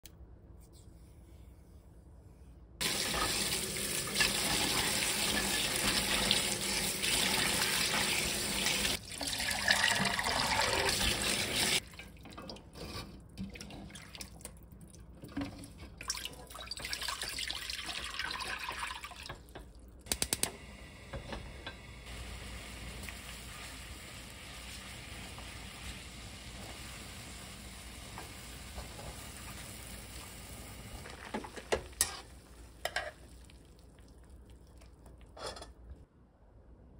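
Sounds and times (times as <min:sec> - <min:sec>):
tap water running into sink: 0:02.8 - 0:11.8
water poured into wok: 0:02.8 - 0:12.0.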